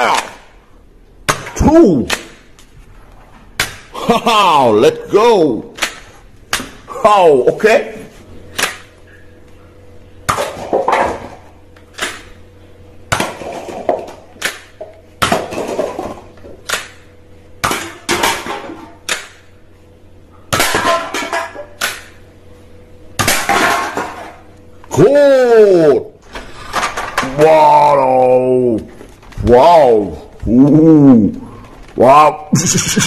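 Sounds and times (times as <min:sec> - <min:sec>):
faint steady hum: 0:00.0 - 0:33.0
clattering knocks of hard objects: 0:10.3 - 0:11.4, 0:13.1 - 0:16.9.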